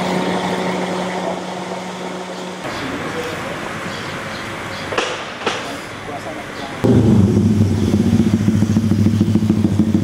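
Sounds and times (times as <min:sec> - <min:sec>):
traffic hum: 0:00.0 - 0:10.0.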